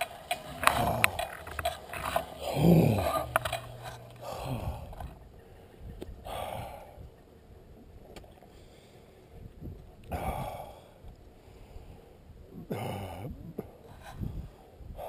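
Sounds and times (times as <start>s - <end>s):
person breathing hard: 0.4s - 7.0s, 10.1s - 15.0s.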